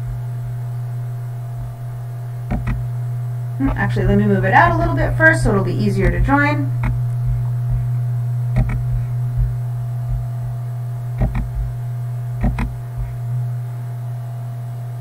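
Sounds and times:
electrical hum: 0:00.0 - 0:15.0
computer mouse clicks: 0:02.5 - 0:02.8, 0:08.6 - 0:08.9, 0:11.2 - 0:11.6, 0:12.4 - 0:13.2.

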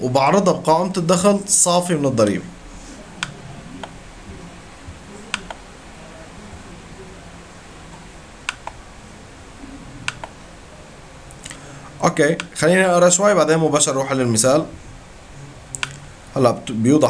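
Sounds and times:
faint low room hum: 0:00.0 - 0:17.0
computer mouse clicking: 0:05.3 - 0:05.6, 0:07.9 - 0:08.8, 0:10.0 - 0:10.4, 0:12.4 - 0:12.6, 0:15.7 - 0:16.0.

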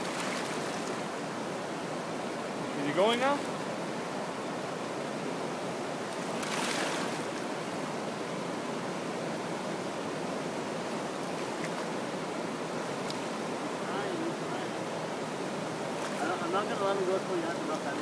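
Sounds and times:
flowing river water: 0:00.0 - 0:18.0
water swish: 0:06.1 - 0:07.5.

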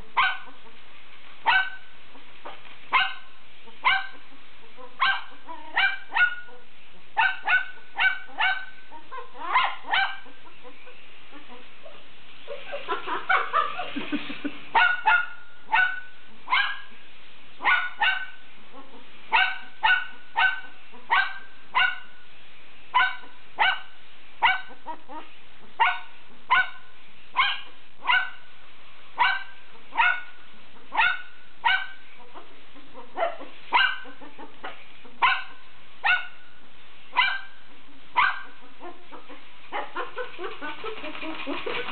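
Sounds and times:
puppy yapping: 0:02.9 - 0:04.2, 0:07.2 - 0:10.3, 0:23.0 - 0:26.8, 0:27.4 - 0:28.4, 0:33.0 - 0:36.4, 0:38.2 - 0:41.9.

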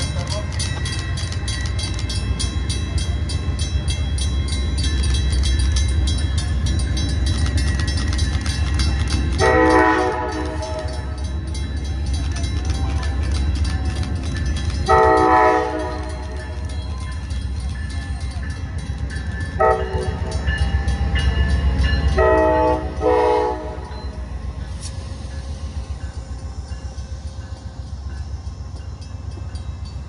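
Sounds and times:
crossing bell dinging: 0:00.0 - 0:30.0
locomotive engine rumble: 0:00.0 - 0:30.0
train horn blasts: 0:09.4 - 0:11.1, 0:14.8 - 0:16.3, 0:19.6 - 0:20.3, 0:22.2 - 0:24.2.

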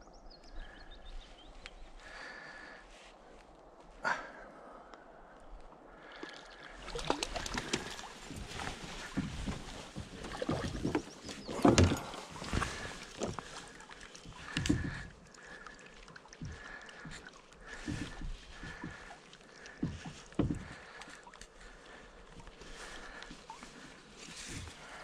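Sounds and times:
water sloshing: 0:05.9 - 0:25.0.

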